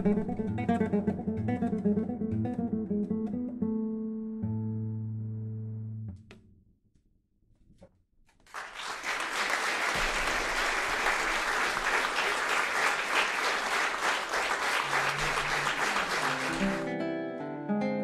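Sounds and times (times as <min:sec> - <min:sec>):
audience applause: 0:08.4 - 0:16.9.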